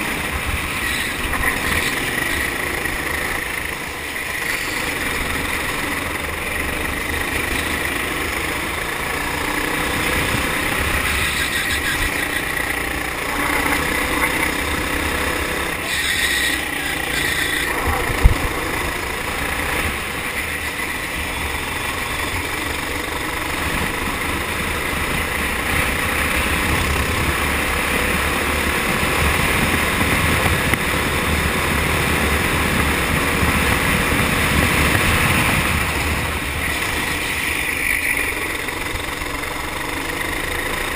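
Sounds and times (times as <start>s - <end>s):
kart engine running: 0.0s - 40.9s.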